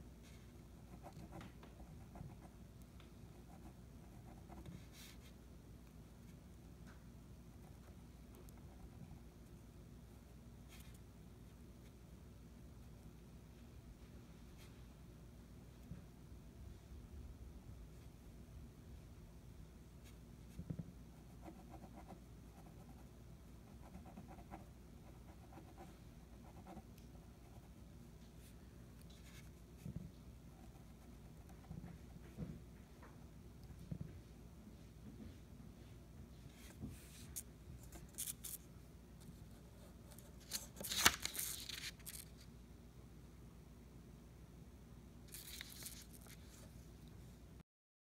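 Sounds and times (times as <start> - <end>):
pen scratching on paper: 21.2 - 23.0, 23.7 - 27.7
paper rustling: 36.6 - 38.6, 40.1 - 42.4, 45.3 - 46.8.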